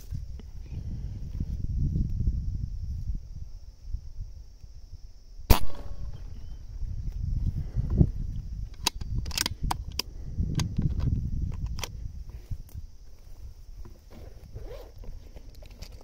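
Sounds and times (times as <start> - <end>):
wind rumble: 0.0 - 15.8
air rifle shot crack: 5.5 - 6.5.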